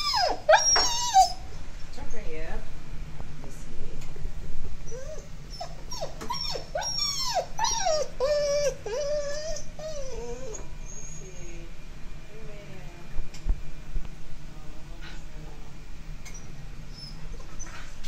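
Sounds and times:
dog whining and whimpering: 0:00.0 - 0:01.5, 0:04.9 - 0:11.7, 0:16.3 - 0:18.0.

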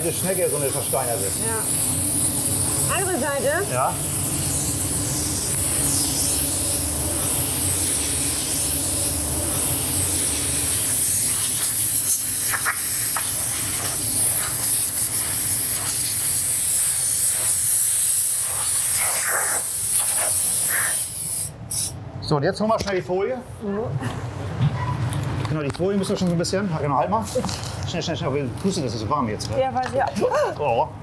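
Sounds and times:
air blow gun hissing: 0:00.0 - 0:22.0.

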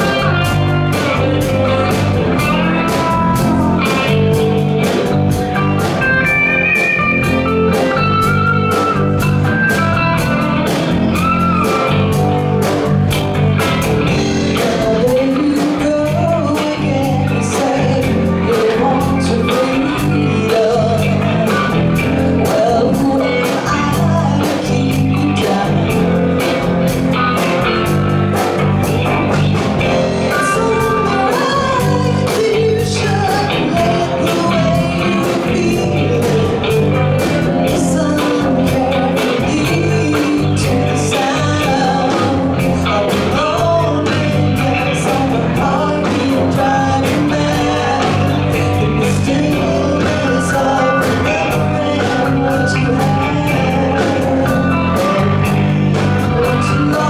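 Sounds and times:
bass guitar: 0:00.0 - 0:57.0
drums on steady beat: 0:00.0 - 0:57.0
electric guitars: 0:00.0 - 0:57.0
woman singing: 0:14.4 - 0:26.5, 0:30.3 - 0:57.0.

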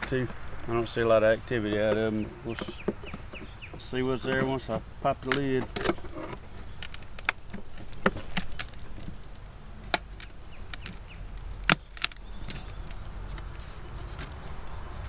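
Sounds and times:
hive lid cracking open: 0:04.3 - 0:14.7.

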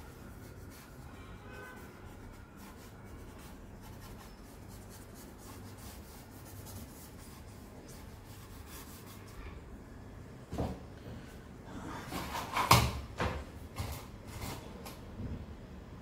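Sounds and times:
charcoal scratching on paper: 0:00.0 - 0:09.6.

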